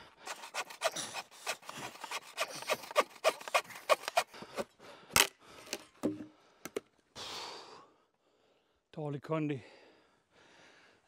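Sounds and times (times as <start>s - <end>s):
bow saw cutting log: 0.0s - 4.7s.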